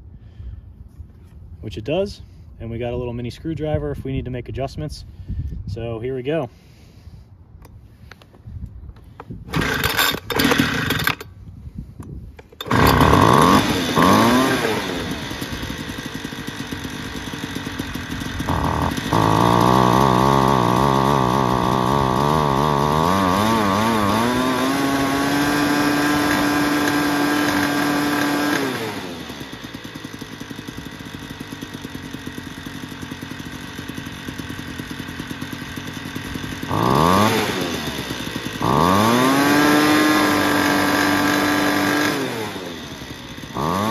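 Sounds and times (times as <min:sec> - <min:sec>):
leaf blower engine revving: 0:09.0 - 0:43.9
leaf blower pull cord: 0:09.0 - 0:43.9.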